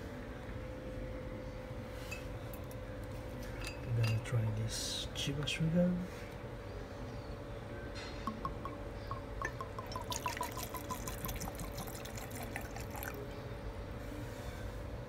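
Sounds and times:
glass clink: 3.6s - 4.3s, 8.3s - 11.5s
liquid glugging from bottle: 8.3s - 13.2s.

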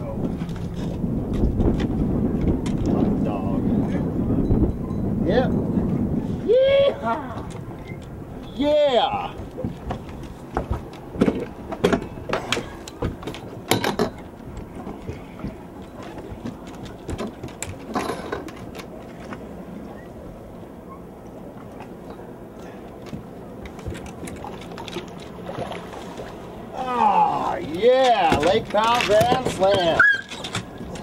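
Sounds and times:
sharp knocks and clicks: 28.0s - 31.0s.

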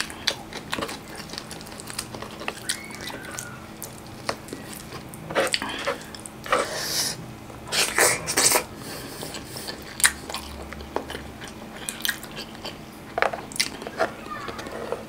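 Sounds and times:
chewing mouth sounds: 0.0s - 6.4s, 9.2s - 14.0s.

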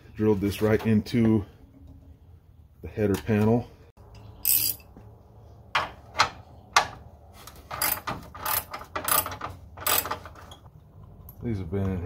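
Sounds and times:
ratchet wrench clicks: 4.4s - 4.9s, 7.8s - 10.1s
hand tool clicking and knocking: 7.7s - 10.4s.

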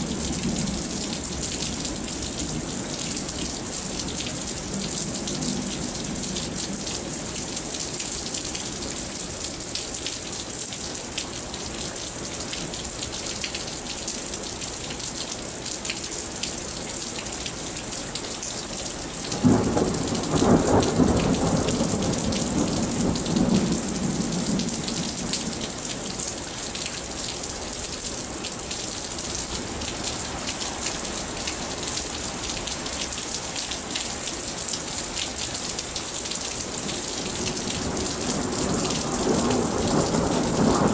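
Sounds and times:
steady rain falling: 0.0s - 40.9s
thunder clap and rumble: 19.3s - 25.6s, 37.3s - 40.9s.

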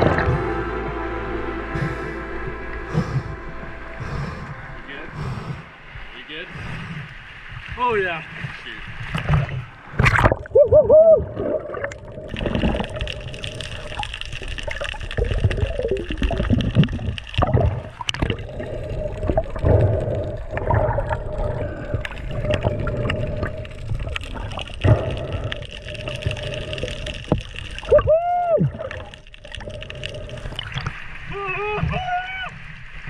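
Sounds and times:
steady hum: 0.0s - 7.2s
low rumble: 0.0s - 30.9s
muffled underwater gurgling: 0.0s - 32.6s.

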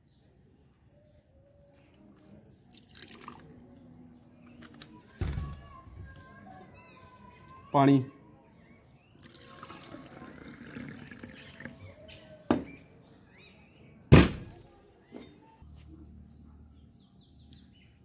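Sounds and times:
water pouring into steel cup: 2.7s - 3.5s, 9.2s - 12.0s.

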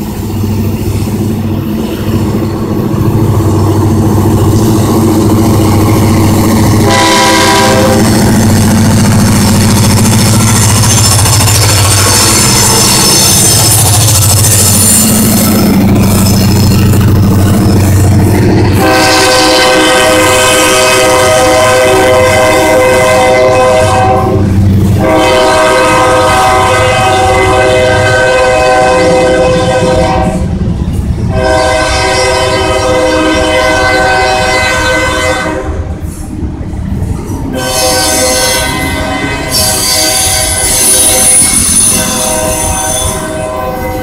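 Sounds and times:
freight train rumbling past: 0.0s - 44.0s
locomotive air horn: 6.0s - 9.1s, 18.6s - 30.5s, 31.3s - 35.9s, 37.5s - 44.0s.

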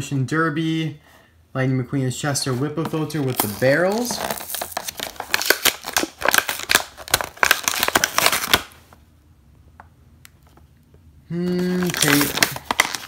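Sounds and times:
plastic blister packaging crackling: 3.1s - 8.8s, 11.5s - 13.0s.

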